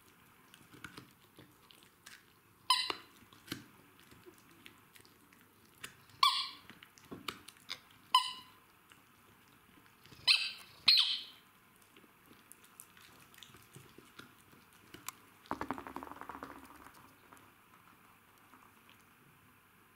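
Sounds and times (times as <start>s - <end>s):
rubber squeaky toy squeaking: 2.7s - 3.1s, 6.2s - 6.6s, 8.1s - 8.6s, 10.2s - 11.3s.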